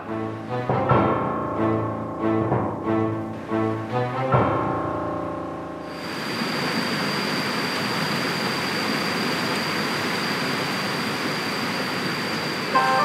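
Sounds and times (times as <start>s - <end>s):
thin steady high tone: 12.7s - 13.0s.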